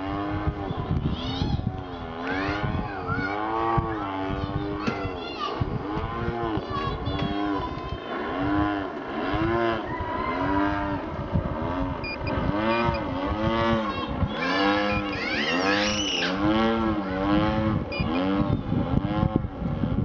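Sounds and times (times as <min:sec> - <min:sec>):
model plane engine swelling: 0:05.8 - 0:20.0.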